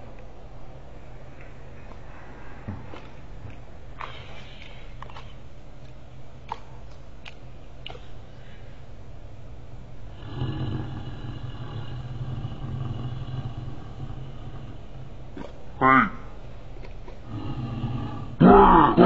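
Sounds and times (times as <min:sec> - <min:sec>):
dog growling low: 0:10.1 - 0:15.6, 0:17.2 - 0:19.0.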